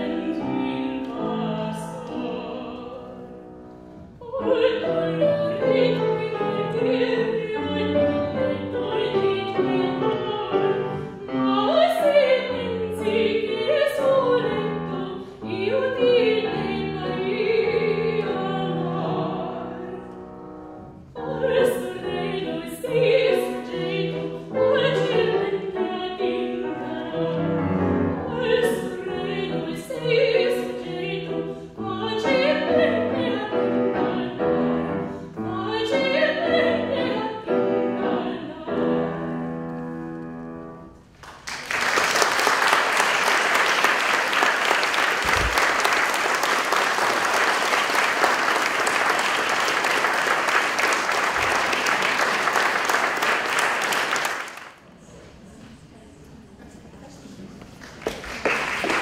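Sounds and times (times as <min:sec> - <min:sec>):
woman singing classical song: 0:00.0 - 0:20.4, 0:21.0 - 0:40.9
piano accompaniment: 0:00.0 - 0:41.1
audience applause: 0:41.2 - 0:54.8, 0:57.8 - 0:59.0.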